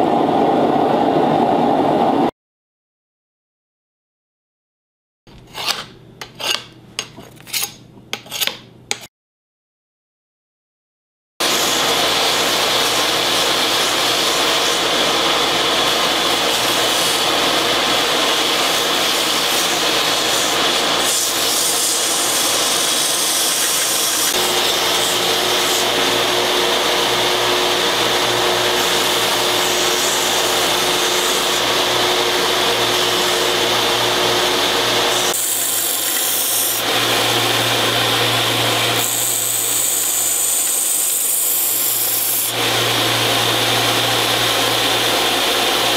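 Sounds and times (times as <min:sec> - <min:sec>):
belt sander whining: 0:11.4 - 0:40.3, 0:42.5 - 0:45.9
abrasive belt grinding wood: 0:11.5 - 0:41.0, 0:42.0 - 0:45.9.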